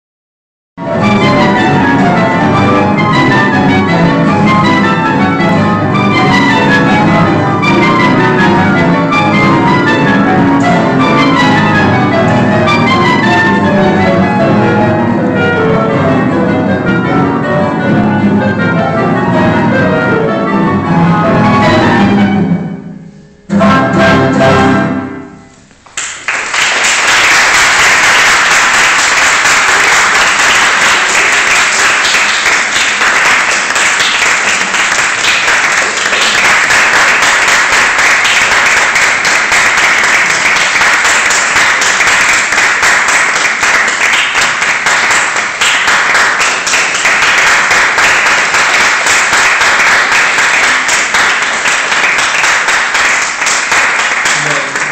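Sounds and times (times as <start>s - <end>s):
clarinet cello and piano chord: 0.8s - 25.5s
audience applause: 25.9s - 54.9s.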